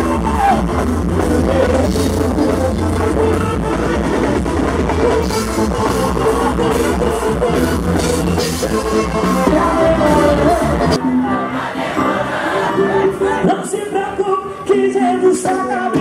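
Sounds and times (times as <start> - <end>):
bass line: 0.0 - 16.0
electric guitar: 0.0 - 16.0
man singing into microphone: 13.3 - 16.0.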